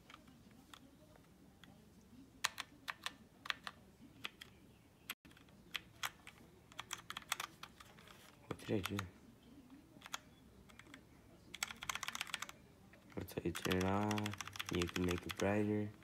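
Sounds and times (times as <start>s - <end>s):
mechanical keyboard keystrokes: 5.2s - 7.8s, 10.0s - 12.6s, 13.4s - 15.6s.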